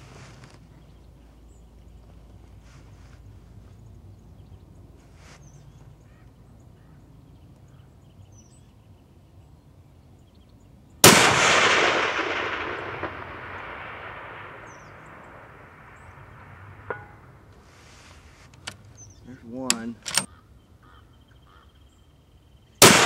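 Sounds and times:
rifle shot with echo: 0:11.0 - 0:17.5, 0:22.8 - 0:23.0.

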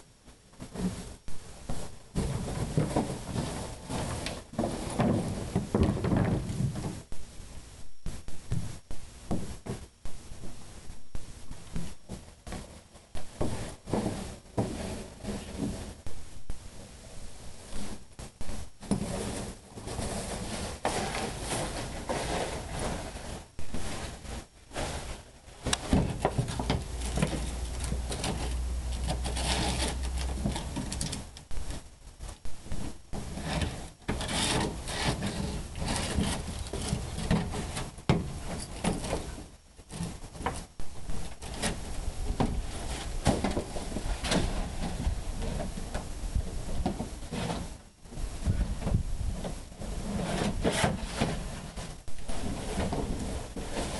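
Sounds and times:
plastic scraping and crackling: 0:18.8 - 0:46.1.

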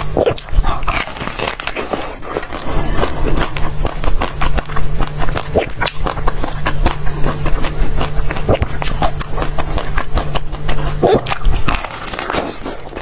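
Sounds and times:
chewing frozen ice crunches: 0:00.0 - 0:13.0.

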